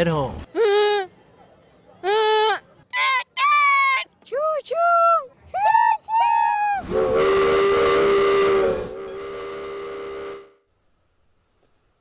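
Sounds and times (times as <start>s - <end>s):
steam locomotive whistle: 6.8s - 10.6s.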